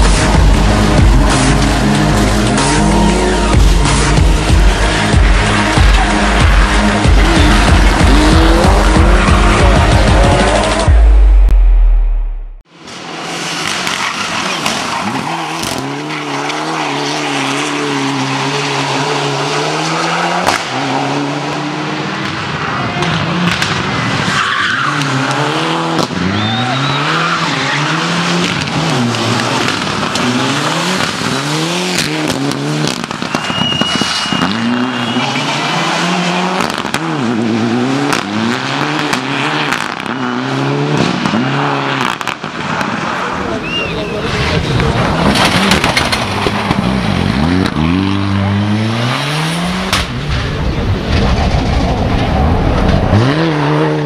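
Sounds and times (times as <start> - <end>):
rally car engine revving: 0.0 - 11.5, 12.7 - 54.0
sharp exhaust pops: 31.9 - 35.2, 45.2 - 47.0
tyre squeal: 33.3 - 35.9.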